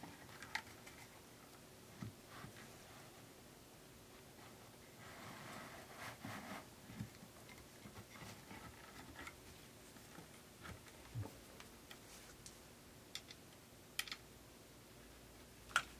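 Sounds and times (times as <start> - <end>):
soft rubbing of rubber: 4.2 - 7.1.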